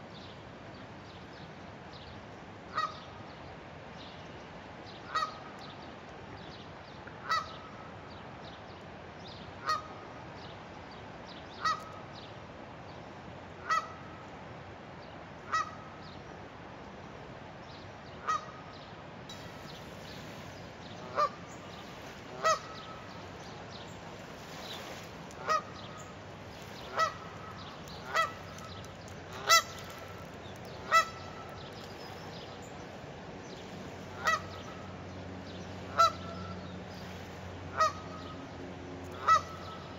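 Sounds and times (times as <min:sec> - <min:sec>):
goose honking: 0:13.6 - 0:14.0, 0:21.0 - 0:21.4, 0:22.3 - 0:23.1, 0:25.4 - 0:26.1, 0:26.9 - 0:28.7, 0:29.4 - 0:30.1, 0:30.8 - 0:31.5, 0:34.1 - 0:34.8, 0:35.9 - 0:36.5, 0:37.7 - 0:38.3, 0:39.1 - 0:39.8.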